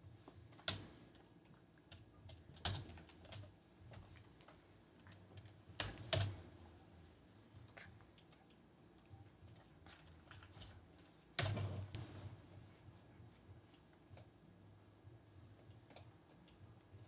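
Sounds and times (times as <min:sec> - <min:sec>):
faint low hum: 0:00.0 - 0:17.0
keyboard keystrokes and mouse clicks: 0:00.3 - 0:06.6, 0:07.7 - 0:12.3.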